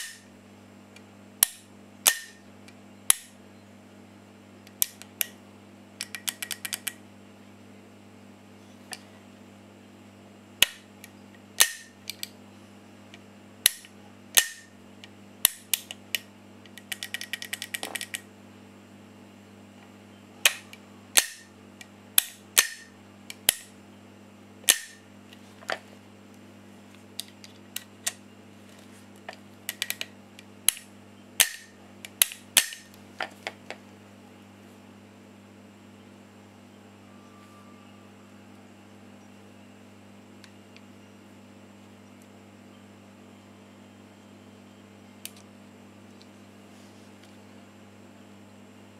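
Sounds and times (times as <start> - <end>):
metallic trigger snaps: 1.4 - 2.4, 11.6 - 12.4, 20.4 - 21.5, 30.7 - 32.9
small clicks: 6.0 - 7.0, 10.6 - 12.4, 15.4 - 18.2.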